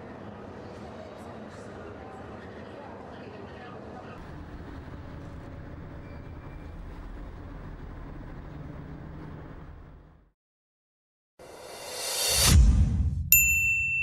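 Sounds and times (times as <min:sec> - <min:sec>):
bus engine and road rumble: 0:04.2 - 0:10.3.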